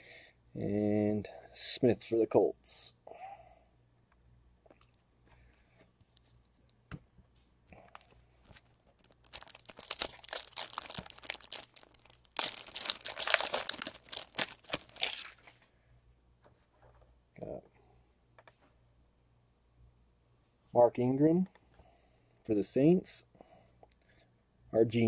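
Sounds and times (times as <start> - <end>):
plastic wrapper tearing and crinkling: 7.9 - 15.5.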